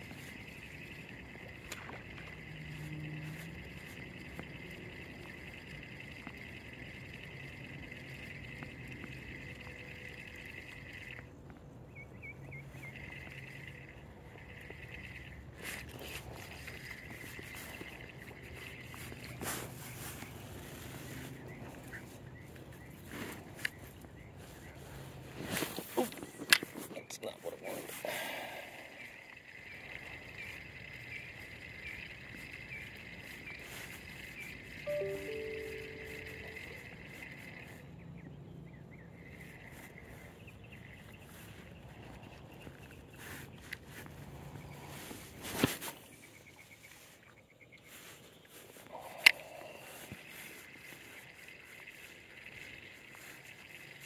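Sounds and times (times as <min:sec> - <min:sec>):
bird chirping: 0:08.1 - 0:15.6, 0:28.2 - 0:43.2
music: 0:34.9 - 0:36.7
pulsing animal chorus: 0:48.8 - 0:54.0.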